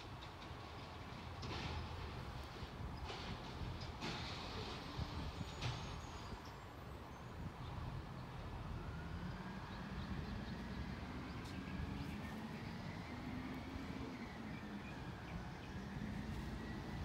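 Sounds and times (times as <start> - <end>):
distant truck engine drone: 7.6 - 17.0.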